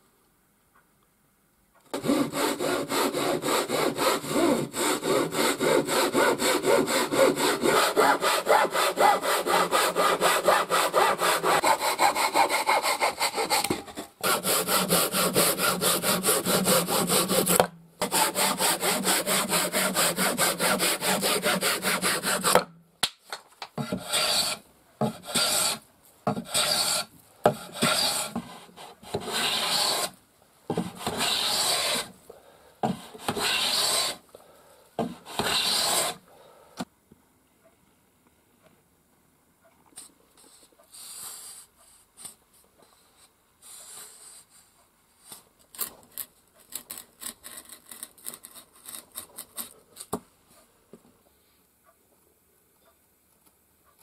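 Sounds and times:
hand saw cutting wood: 1.9 - 22.7, 23.8 - 32.2, 32.8 - 34.2, 35.0 - 36.2, 46.7 - 49.8
hand plane shaving wood: 2.0 - 22.6, 23.8 - 32.1, 32.8 - 34.2, 35.0 - 36.2.

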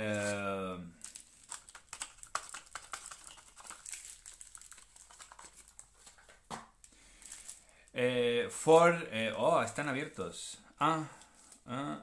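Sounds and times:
wrappers crinkling: 0.0 - 8.0.

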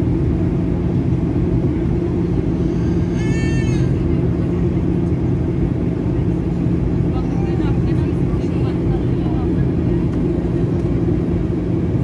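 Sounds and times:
airliner cabin roar: 0.0 - 12.0.

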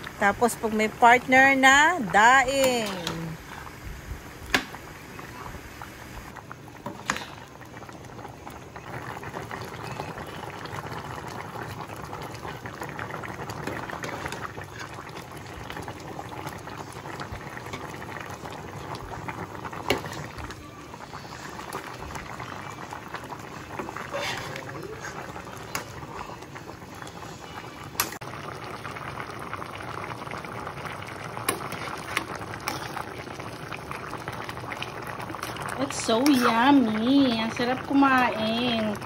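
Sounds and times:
soup bubbling: 0.0 - 39.0.

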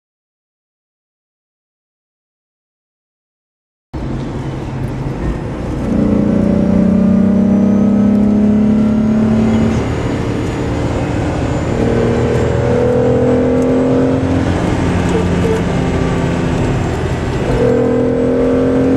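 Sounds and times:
car engine accelerating: 4.0 - 18.9.

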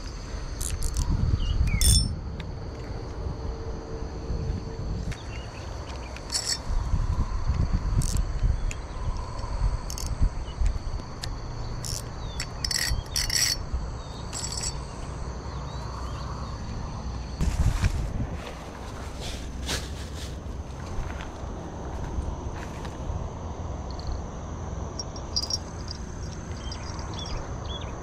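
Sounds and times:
insects chirping: 0.0 - 28.0
small bell jingling: 1.8 - 2.1, 6.3 - 6.7, 12.6 - 13.6, 14.3 - 14.8, 25.0 - 27.4.

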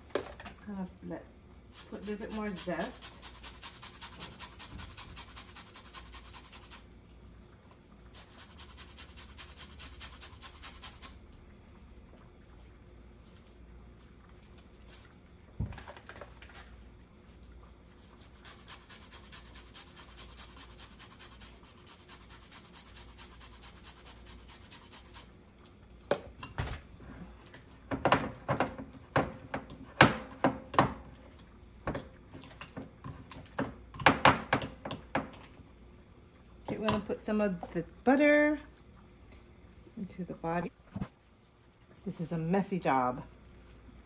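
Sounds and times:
utensil clinking on glass bowl: 36.7 - 37.1.

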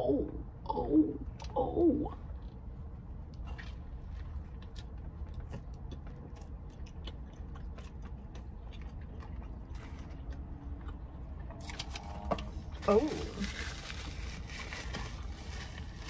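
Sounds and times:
steady low hum: 0.0 - 16.0
person chewing food: 2.3 - 12.3.

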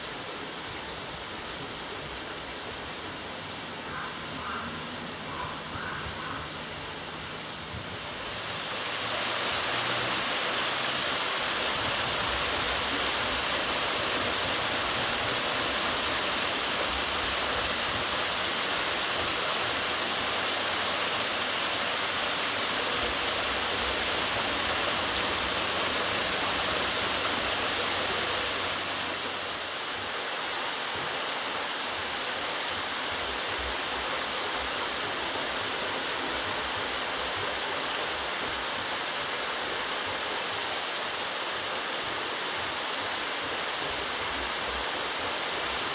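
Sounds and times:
water splashing onto waterwheel: 8.1 - 30.1.

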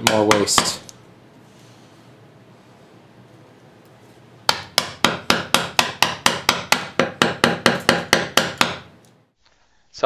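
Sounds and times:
mallet striking chisel into wood: 0.0 - 0.8, 4.5 - 8.9.

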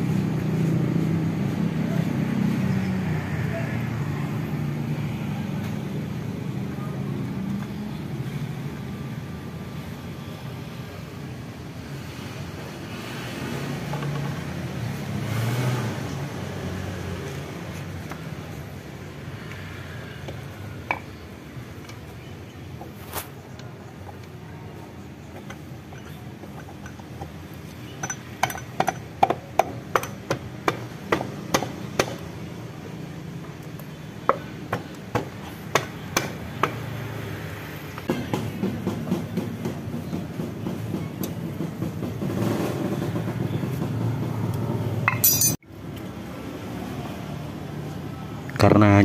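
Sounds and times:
hammer tapping on metal: 28.0 - 32.2.

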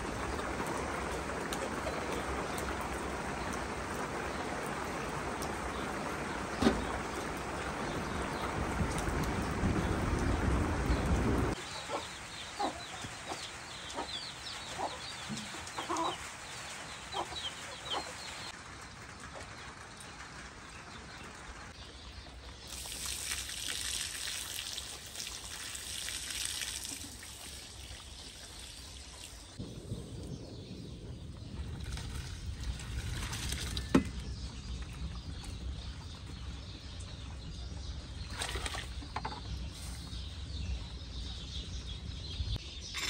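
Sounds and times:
chickens clucking: 11.8 - 16.3.

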